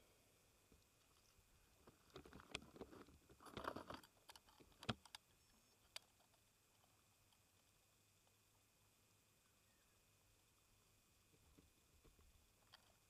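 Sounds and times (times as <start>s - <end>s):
small handling clicks and rustles: 0.8s - 8.4s, 11.4s - 13.0s.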